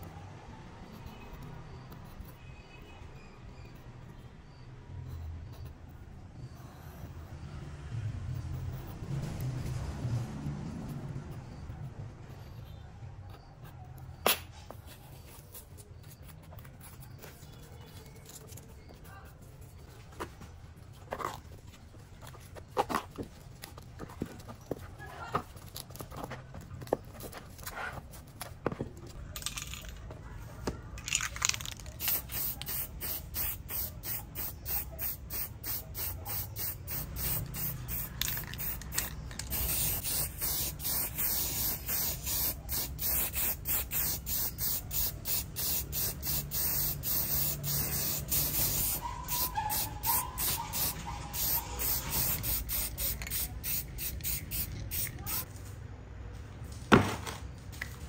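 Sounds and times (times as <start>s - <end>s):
hissing spray pulses: 32.0s - 55.5s.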